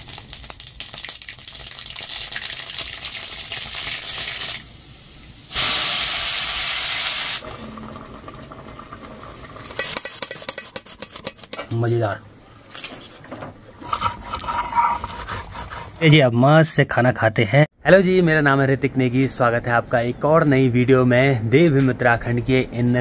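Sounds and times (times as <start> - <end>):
food sizzling in hot oil: 0.0 - 7.5
loud even hiss: 4.0 - 7.4.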